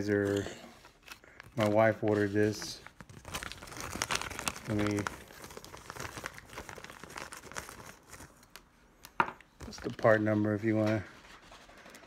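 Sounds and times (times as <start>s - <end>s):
plastic bag crinkling: 1.0s - 8.7s.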